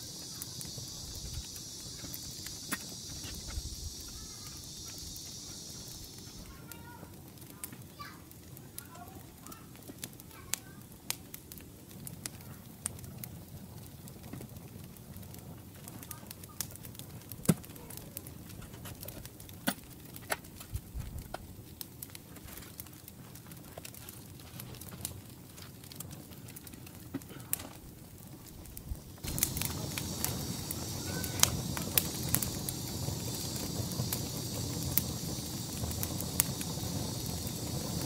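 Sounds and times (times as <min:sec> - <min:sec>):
sharp clicks and ticks: 0:29.2 - 0:38.0.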